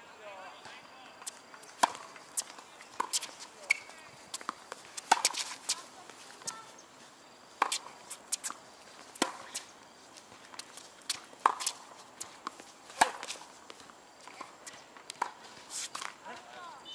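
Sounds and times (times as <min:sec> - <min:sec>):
tennis ball hitting racket and court: 0:01.2 - 0:06.8, 0:07.5 - 0:16.6
shoe scuffs and footsteps: 0:01.2 - 0:16.3.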